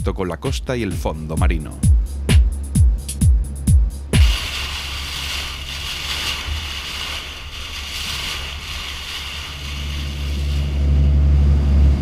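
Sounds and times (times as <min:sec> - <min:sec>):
boat engine droning: 0:03.4 - 0:12.0
water rushing off boat bow: 0:04.2 - 0:12.0.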